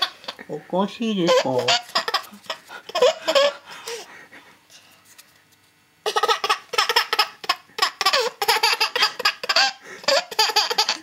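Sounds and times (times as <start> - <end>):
baby laughing: 0.0 - 0.5, 1.3 - 4.1, 6.0 - 11.0.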